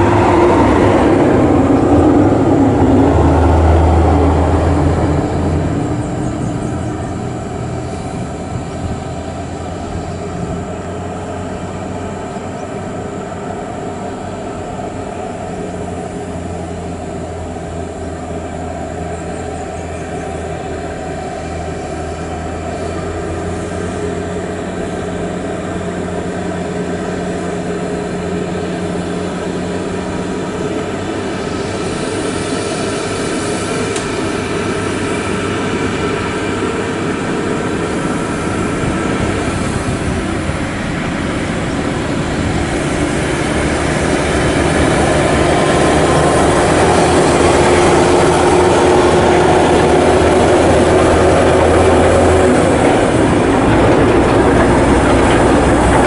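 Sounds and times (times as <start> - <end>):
diesel truck engine drone: 0.0 - 56.0.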